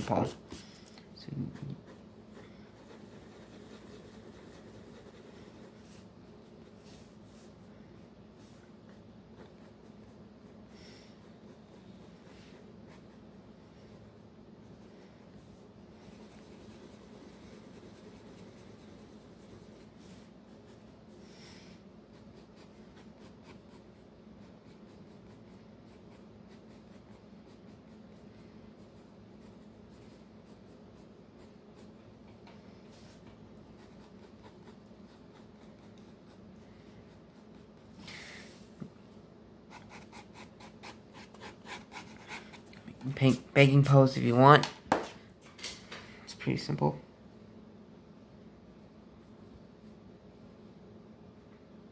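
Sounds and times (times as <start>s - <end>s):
low steady hum: 0.0s - 51.9s
pencil rubbing back and forth: 1.4s - 7.6s, 8.4s - 14.1s, 14.7s - 21.1s, 22.0s - 32.1s, 32.9s - 38.0s, 39.7s - 43.4s
pencil scratching on paper: 1.4s - 7.6s, 8.4s - 14.1s, 15.9s - 21.0s, 22.0s - 32.3s, 32.9s - 38.0s, 39.7s - 43.4s.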